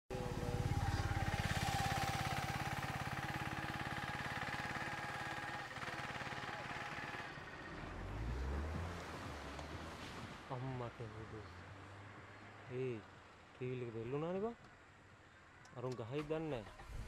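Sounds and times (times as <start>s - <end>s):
vehicle engine idling: 0.1s - 9.7s.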